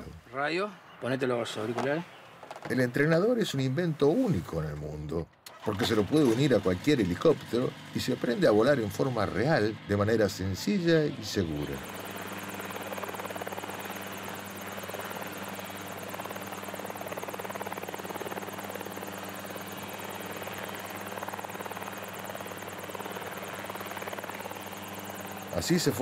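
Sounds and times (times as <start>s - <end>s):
helicopter engine and rotor drone: 5.5s - 26.0s.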